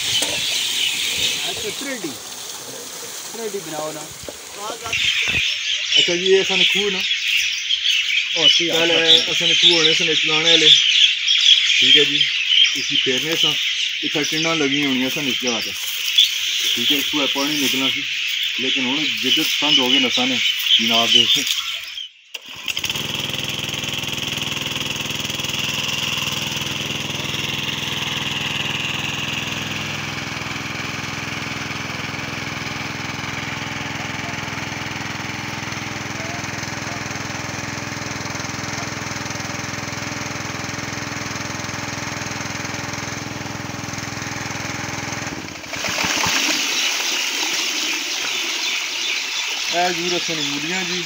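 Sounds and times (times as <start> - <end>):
water gushing from pipe: 0.0 - 5.4, 22.4 - 51.0
water pump engine running: 0.0 - 7.1, 8.3 - 11.0, 11.6 - 21.5, 22.4 - 51.0.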